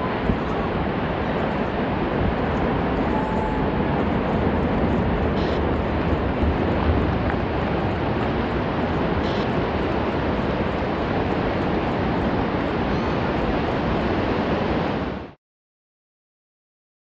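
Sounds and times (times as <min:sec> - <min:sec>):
water surging: 0:00.0 - 0:15.3.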